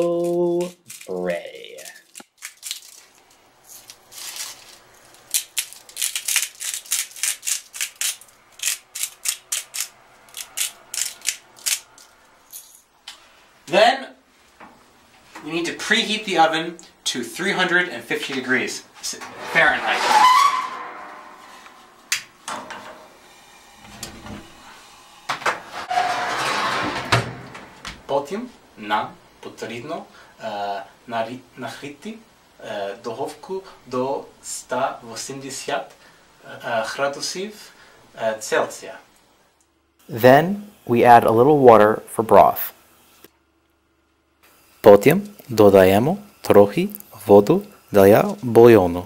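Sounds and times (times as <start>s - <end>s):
rustling: 1.8s - 13.3s
oven door clunking shut: 22.1s - 23.2s, 25.3s - 28.1s.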